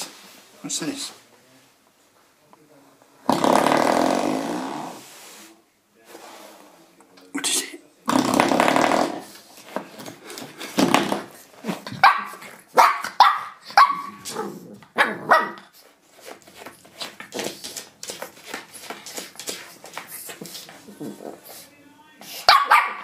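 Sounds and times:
puppy barking: 12.0s - 15.6s, 22.4s - 23.0s.

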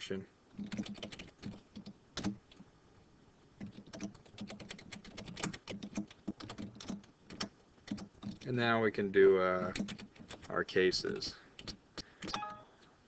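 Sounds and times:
keyboard keys clicking: 0.6s - 2.4s, 3.6s - 8.4s, 9.6s - 10.5s.

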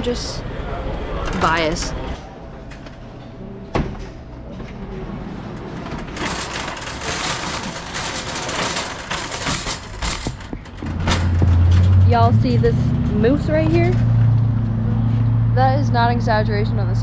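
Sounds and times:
shopping cart rolling and rattling: 4.5s - 14.4s.

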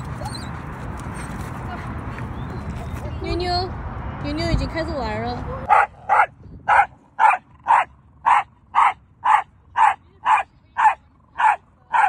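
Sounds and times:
dog barking: 5.7s - 12.0s.

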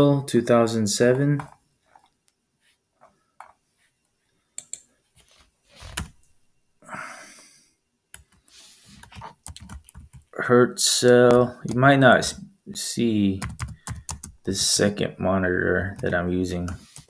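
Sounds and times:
breathy exhale: 6.8s - 7.8s.

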